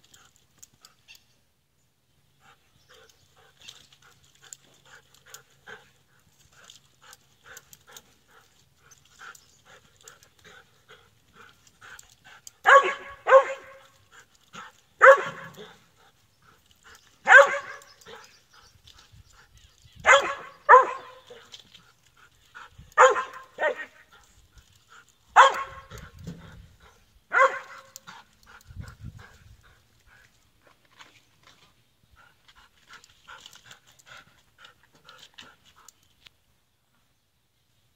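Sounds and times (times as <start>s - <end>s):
dog barking: 12.6s - 13.8s, 15.0s - 15.6s, 17.3s - 17.9s, 20.0s - 21.4s, 23.0s - 24.0s, 25.4s - 26.0s, 27.3s - 28.0s.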